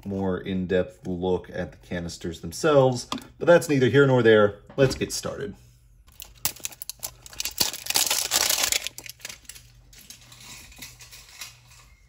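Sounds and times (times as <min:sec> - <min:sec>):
plastic crinkling: 0:06.1 - 0:11.1.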